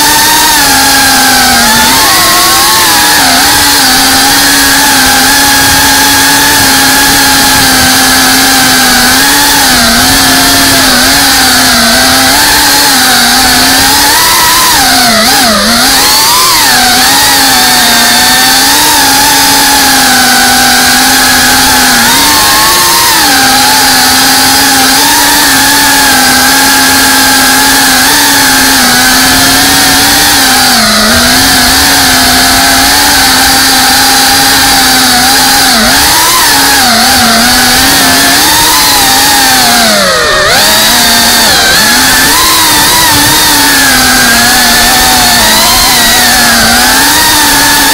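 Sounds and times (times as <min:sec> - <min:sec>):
drone motors whining: 0:00.0 - 0:47.9.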